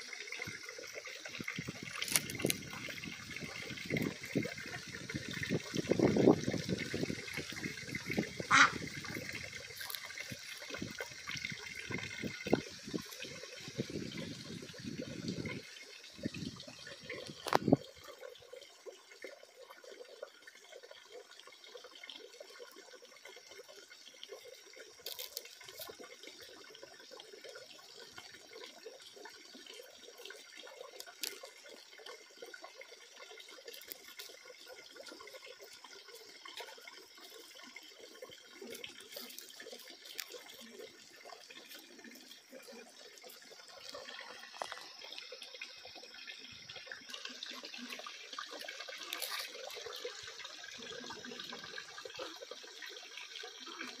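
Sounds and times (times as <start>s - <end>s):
water running and trickling: 0.0s - 54.0s.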